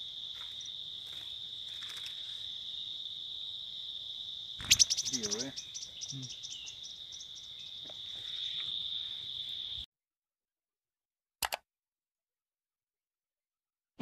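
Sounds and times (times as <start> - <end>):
high-pitched insect drone: 0.0 - 9.9.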